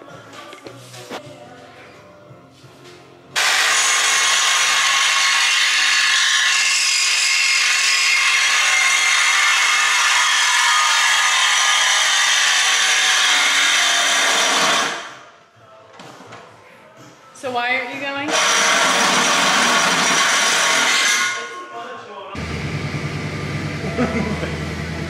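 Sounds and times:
power saw cutting metal pipe: 3.4 - 15.2, 18.3 - 21.5.

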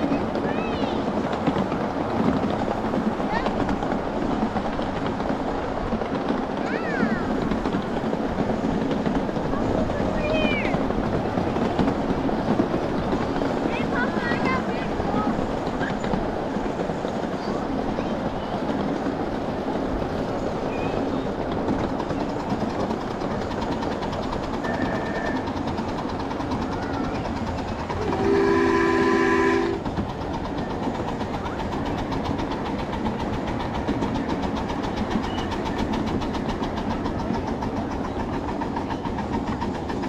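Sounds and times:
small steam train running: 0.0 - 40.0
steam locomotive whistle: 24.6 - 25.5, 28.0 - 29.8.

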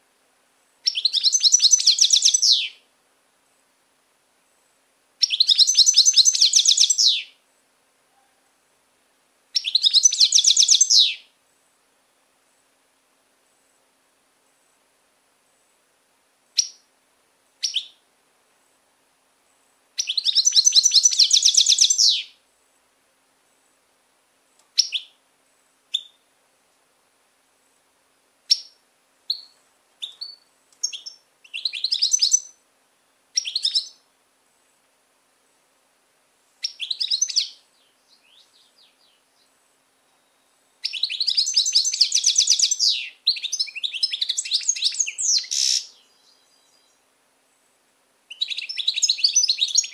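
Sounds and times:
bird twittering trills: 0.8 - 2.8, 5.2 - 7.3, 9.6 - 11.2, 20.0 - 22.4, 24.8 - 25.1, 28.5 - 32.6, 33.4 - 34.0, 36.6 - 47.0, 48.3 - 49.9.

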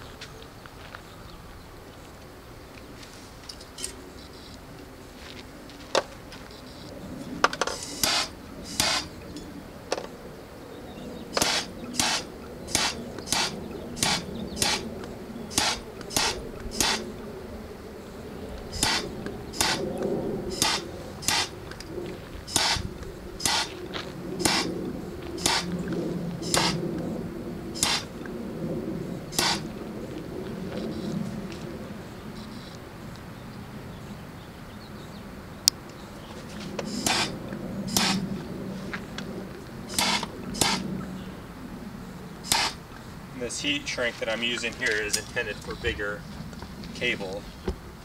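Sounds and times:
gas torch hissing in bursts: 7.8 - 9.1, 11.3 - 14.9, 15.5 - 17.1, 18.7 - 19.8, 20.5 - 21.6, 22.4 - 23.7, 24.4 - 24.7, 25.4 - 25.7, 26.4 - 26.8, 27.8 - 28.1, 29.3 - 29.7, 36.9 - 37.3, 37.9 - 38.2, 39.9 - 40.8, 42.4 - 42.8.

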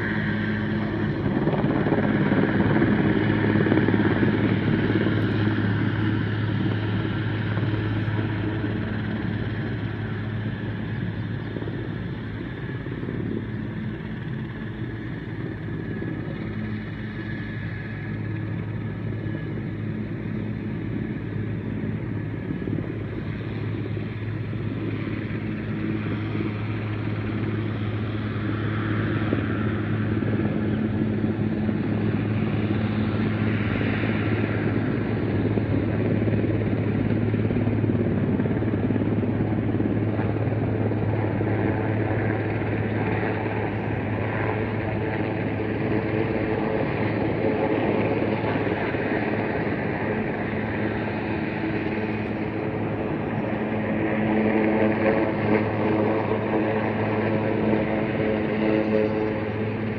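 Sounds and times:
helicopter rotor and engine drone: 0.0 - 59.9.

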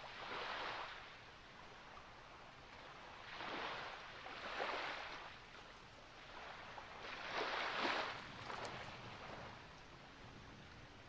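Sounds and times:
small waves washing on beach: 0.0 - 11.0.

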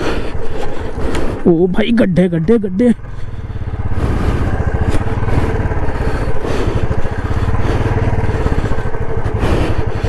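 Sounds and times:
motorcycle engine running: 0.0 - 10.0.

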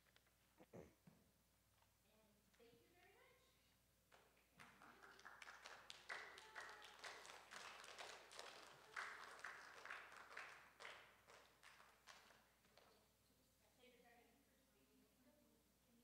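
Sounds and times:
faint light clapping: 4.1 - 13.0.

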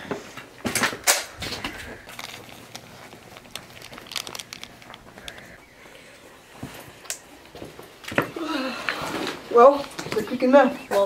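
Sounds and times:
paper crinkling: 1.4 - 5.8
small clicks: 2.1 - 5.6.

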